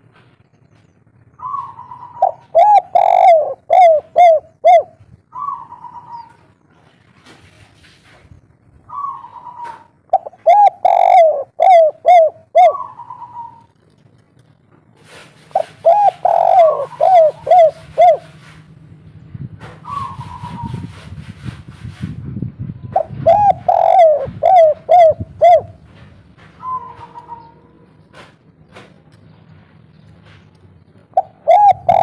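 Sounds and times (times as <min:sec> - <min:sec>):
dove cooing: 0:01.4 - 0:06.4, 0:08.9 - 0:13.8, 0:15.5 - 0:18.5, 0:19.8 - 0:21.0, 0:22.9 - 0:26.0, 0:26.6 - 0:27.7, 0:31.1 - 0:32.0.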